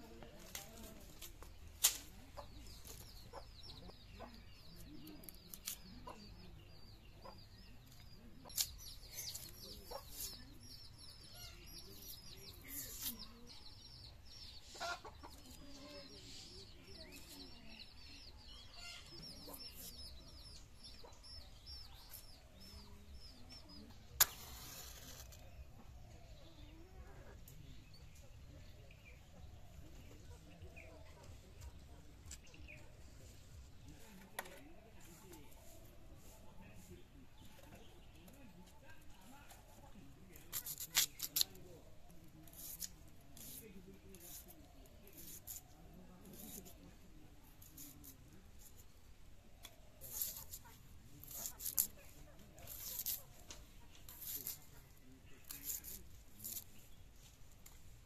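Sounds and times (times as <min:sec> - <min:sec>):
chickens clucking: 0:01.9 - 0:05.1, 0:05.9 - 0:13.4, 0:14.6 - 0:16.2
chicks peeping: 0:02.2 - 0:23.9.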